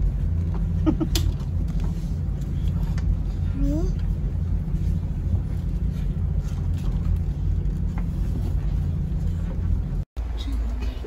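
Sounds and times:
ferry engines rumbling: 0.0 - 11.0.

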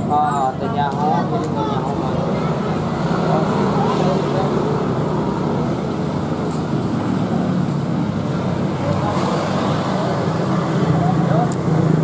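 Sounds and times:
faint voices: 0.0 - 5.7
vehicle and road noise: 0.0 - 12.0.

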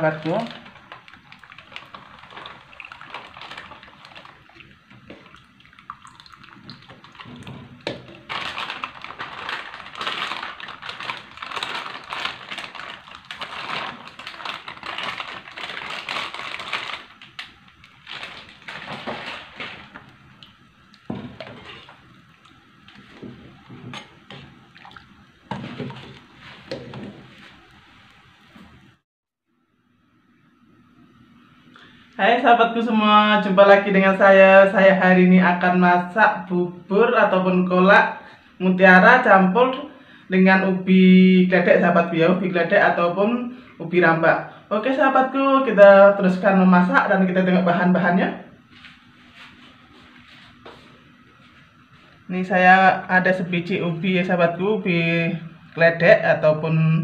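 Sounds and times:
liquid splashing in a pot: 0.2 - 28.4
ladle stirring a pot: 0.3 - 15.8, 17.3 - 28.1.

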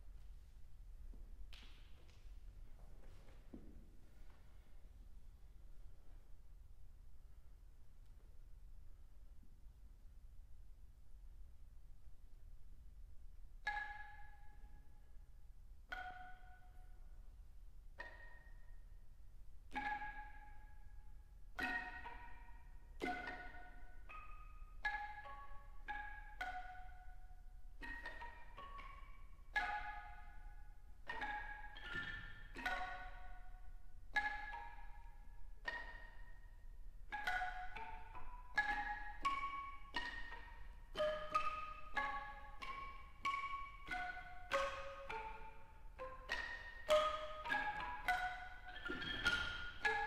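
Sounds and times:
wooden keyed percussion notes: 13.6 - 50.0.

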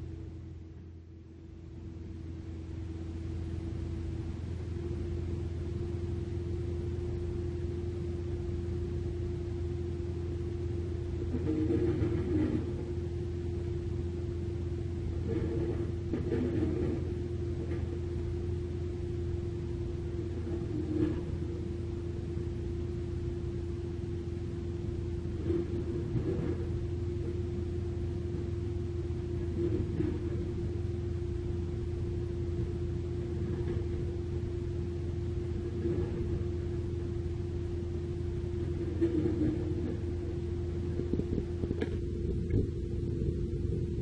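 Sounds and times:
diesel engines rumbling: 29.4 - 44.0.

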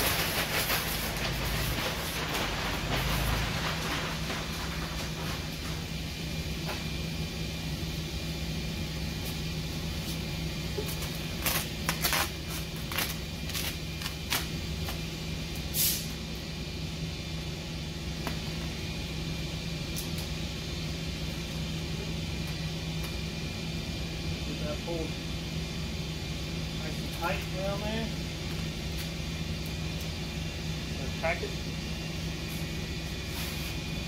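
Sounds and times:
vinyl film rustling and crackling: 0.0 - 5.6, 10.8 - 14.5
steady low hum: 0.0 - 34.0.

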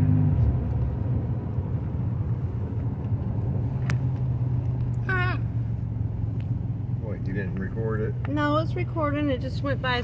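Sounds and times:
road and tyre rumble: 0.0 - 10.0
truck engine hum: 0.0 - 10.0.

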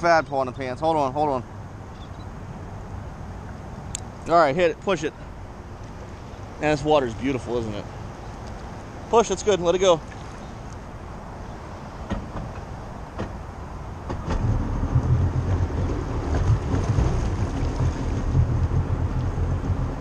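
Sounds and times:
watercraft engine idling: 13.7 - 20.0.

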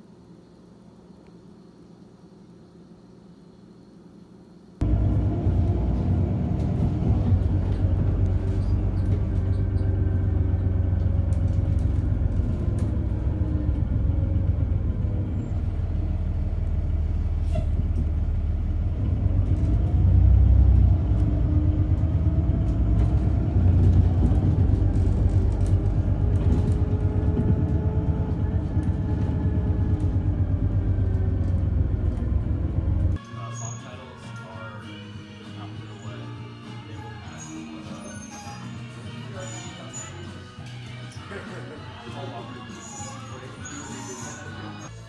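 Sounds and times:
road vehicle rumbling: 4.8 - 33.2.

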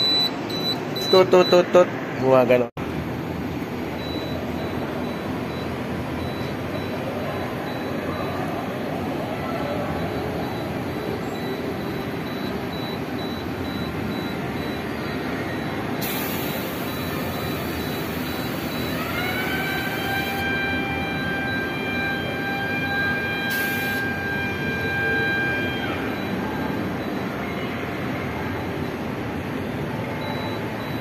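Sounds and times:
steady mechanical background: 0.0 - 9.3, 9.9 - 31.0
motor whine rising in pitch: 16.5 - 26.2.

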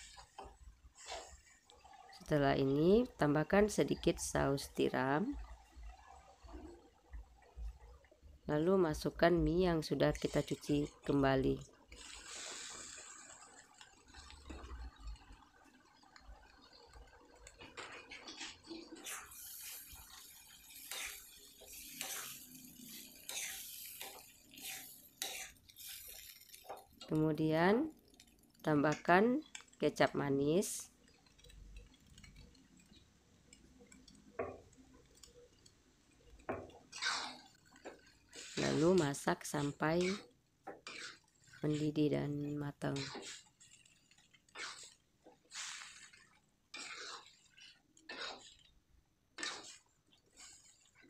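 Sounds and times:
sauce simmering in a wok: 0.0 - 51.0
metal spatula scraping wok: 17.8 - 26.8, 36.5 - 51.0.

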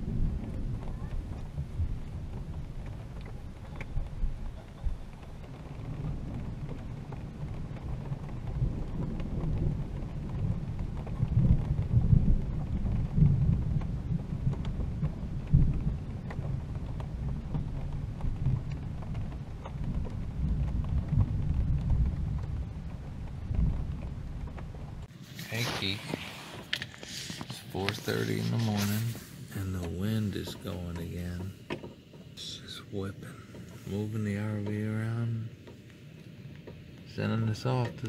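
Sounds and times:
low rolling thunder: 0.0 - 26.6
falling rain: 0.0 - 38.0.

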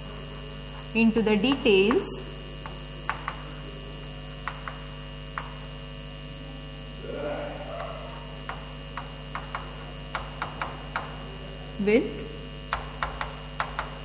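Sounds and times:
electrical hum: 0.0 - 14.0
chalk tapping on blackboard: 2.6 - 3.5, 4.4 - 5.6, 8.4 - 11.2, 12.7 - 14.0.

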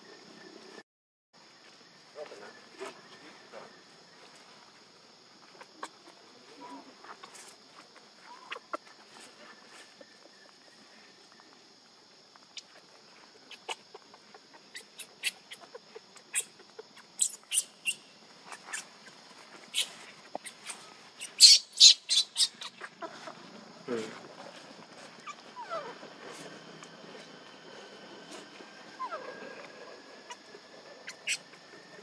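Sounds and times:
baby monkey squeaking cries: 17.2 - 18.0, 19.7 - 22.9, 25.2 - 25.8, 31.1 - 31.4.

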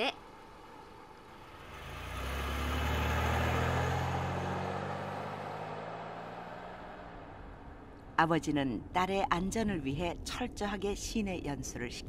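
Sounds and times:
car engine driving off: 0.2 - 8.0.

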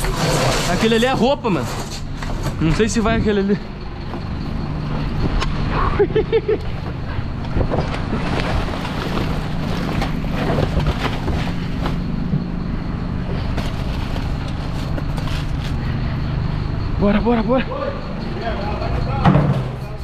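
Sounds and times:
garbage truck engine running: 0.0 - 20.0
plastic bags rustling: 8.0 - 12.2, 13.4 - 15.9.

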